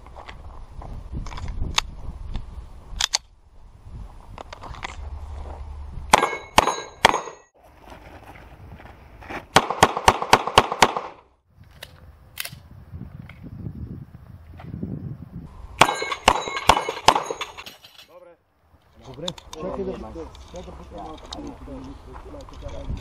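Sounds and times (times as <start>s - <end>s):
pistol shots: 6.1s - 7.4s, 9.6s - 11.2s, 15.8s - 17.6s.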